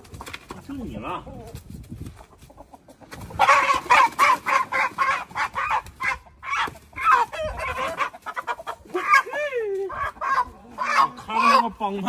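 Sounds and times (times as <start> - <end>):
chicken squawking in alarm: 3.2 - 11.8.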